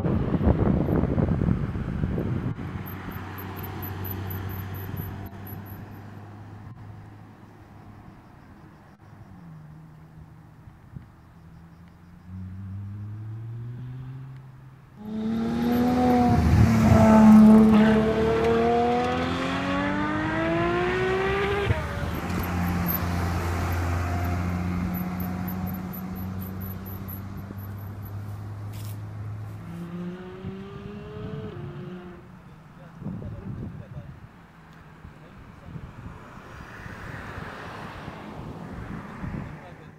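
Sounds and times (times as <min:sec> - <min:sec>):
car engine accelerating hard: 0:15.0 - 0:32.3.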